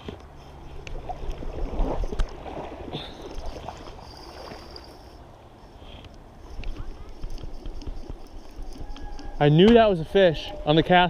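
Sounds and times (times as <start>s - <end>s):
river water sloshing and gurgling: 0.0s - 8.8s.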